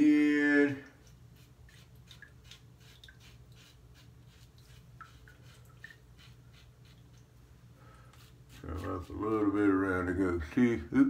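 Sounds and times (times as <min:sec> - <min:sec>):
razor scraping stubble: 0:08.1 - 0:10.1.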